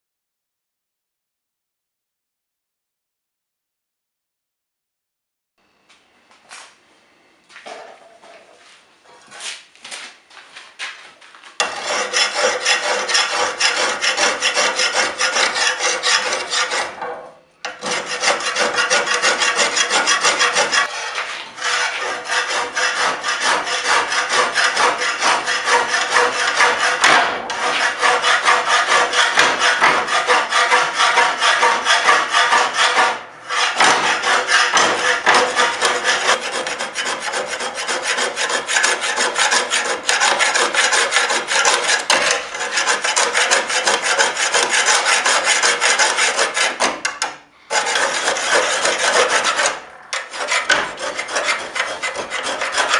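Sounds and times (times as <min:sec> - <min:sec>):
scraper shaving steel blade: 0:11.6 - 0:17.0, 0:17.7 - 0:46.9, 0:47.7 - 0:52.9.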